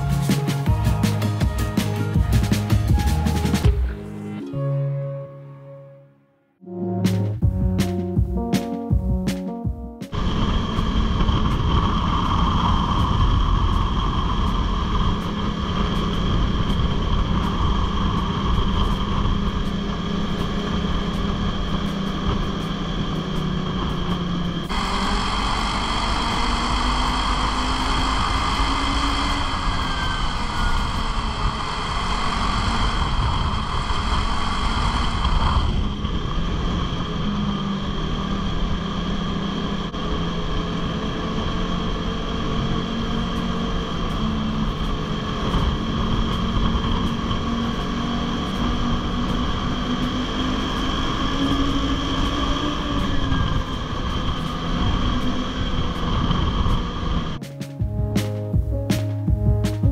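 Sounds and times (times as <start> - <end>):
steady high whine: 6.6 - 59.9
snowmobile engine running: 9.1 - 57.4
rushing hiss: 24.7 - 35.8.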